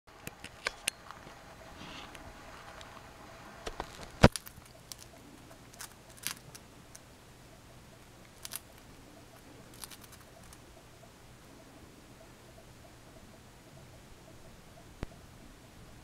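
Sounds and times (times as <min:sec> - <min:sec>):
bird beak crunching pretzel: 0:03.6 - 0:07.1, 0:08.0 - 0:10.7.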